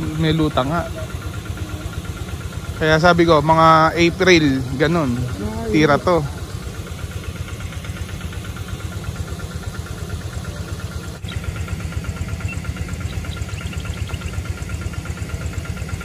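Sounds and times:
engine idling with pulsing beat: 0:00.0 - 0:16.0.

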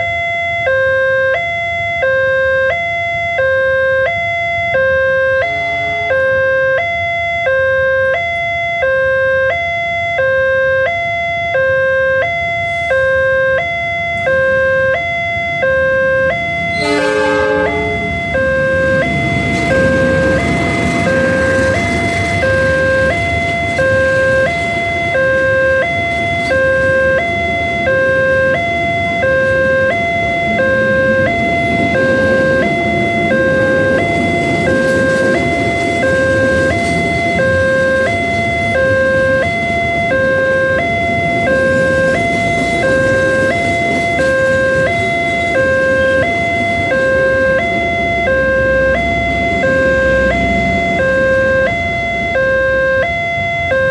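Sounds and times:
train rumbling past: 0:15.2 - 0:53.4.

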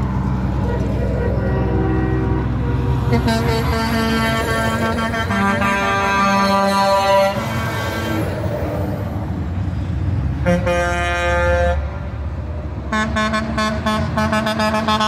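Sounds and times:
diesel trucks rumbling past: 0:00.0 - 0:15.0
truck air horn blasts: 0:00.6 - 0:08.5, 0:10.4 - 0:12.1, 0:12.9 - 0:15.0.

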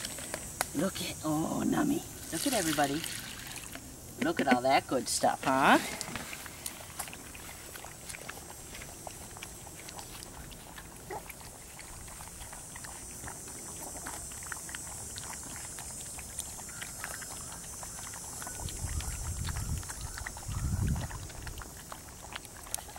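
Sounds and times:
puppies lapping and slurping: 0:00.0 - 0:22.9.

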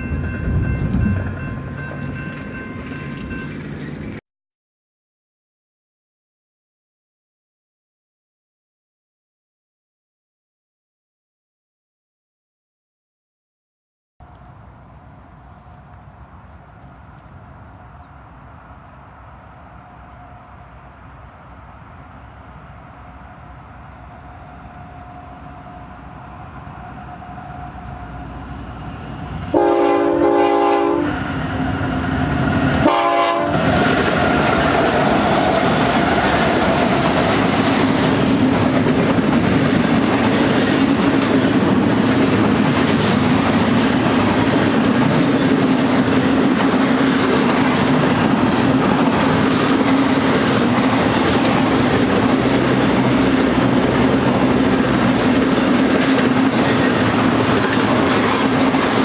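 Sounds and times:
diesel locomotive rumble: 0:00.0 - 0:04.2, 0:14.2 - 0:59.0
train cars clickety-clack: 0:00.0 - 0:04.2, 0:28.8 - 0:59.0
train horn blasts: 0:19.8 - 0:21.0, 0:23.0 - 0:31.3, 0:32.8 - 0:33.7.

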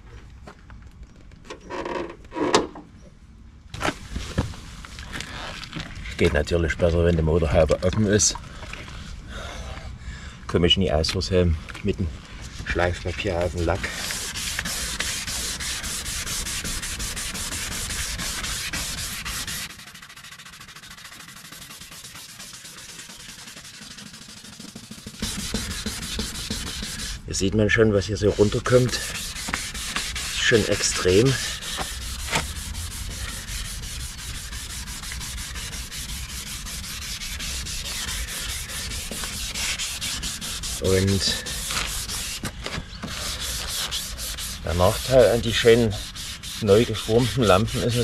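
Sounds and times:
sandpaper sanding plastic: 0:12.7 - 0:48.0.

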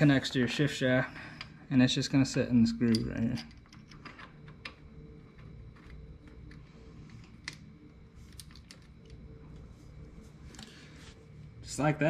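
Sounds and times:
faint steady hum: 0:00.0 - 0:12.0
small metal parts clicking: 0:02.8 - 0:06.6, 0:08.3 - 0:09.2.

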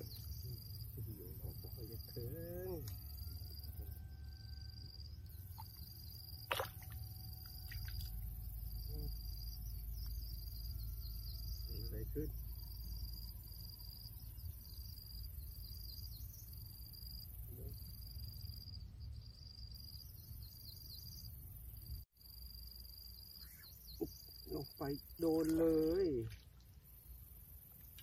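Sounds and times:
low steady rumble: 0:00.0 - 0:21.8
insects trilling: 0:00.0 - 0:28.0.

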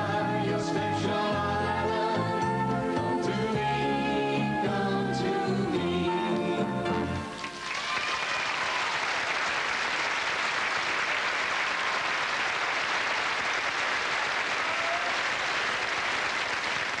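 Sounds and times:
audience applauding: 0:07.3 - 0:17.0.

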